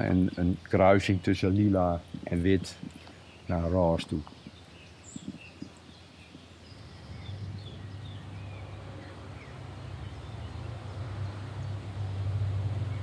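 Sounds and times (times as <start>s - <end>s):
high bird chirps: 2.0s - 10.8s
low steady rumble: 4.9s - 13.0s.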